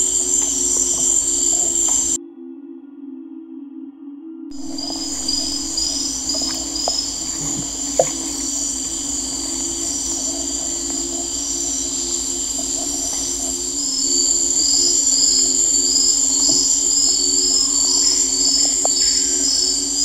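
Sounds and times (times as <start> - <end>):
insects calling high-pitched: 0.0 - 2.2, 4.5 - 20.0
low pulsing hum: 4.5 - 20.0.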